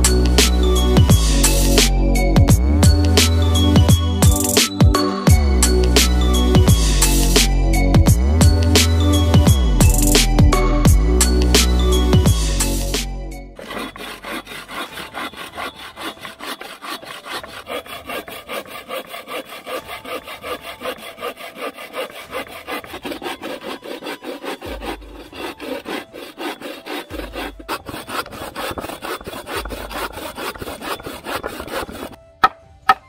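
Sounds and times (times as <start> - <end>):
saw cutting wood: 13.6 - 33.0.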